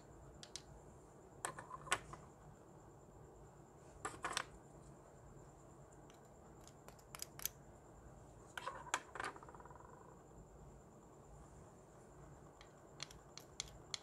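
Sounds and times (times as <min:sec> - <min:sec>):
plastic pots clicking and tapping: 0:12.6 - 0:14.0.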